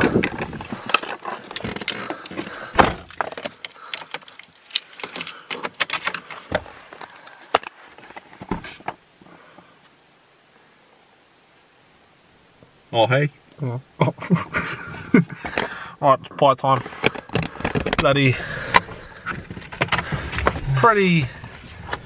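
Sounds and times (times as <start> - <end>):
clicks knocks and rattles: 17.0 - 20.6.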